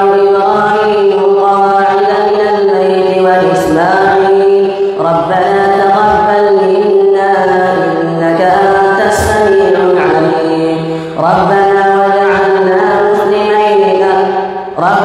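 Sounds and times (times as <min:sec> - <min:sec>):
man chanting a recitation: 0:07.7 - 0:14.0.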